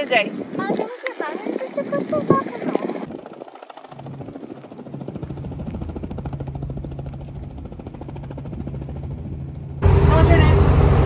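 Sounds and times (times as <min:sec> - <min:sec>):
helicopter rotor chop: 0:00.0 - 0:11.0.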